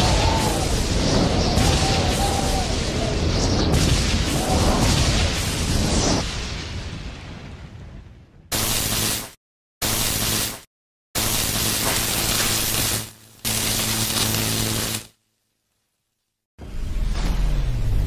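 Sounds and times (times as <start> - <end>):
crackling electric static: 8.5 - 16.3.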